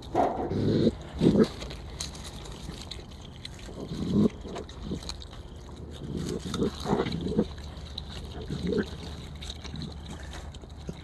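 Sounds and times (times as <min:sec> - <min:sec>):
raccoon chewing and snuffling: 0:00.0 - 0:11.0.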